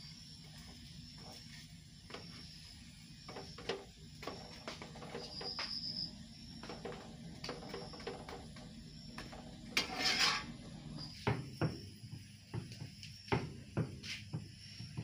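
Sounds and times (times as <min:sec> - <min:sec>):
metal spatula scraping a griddle: 0:09.7 - 0:10.7.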